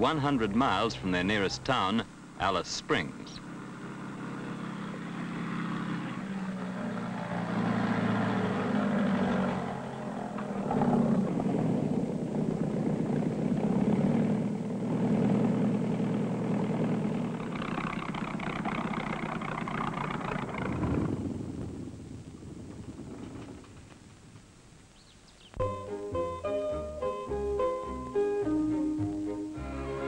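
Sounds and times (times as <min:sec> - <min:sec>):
propeller aircraft engine: 0:00.0 - 0:24.0.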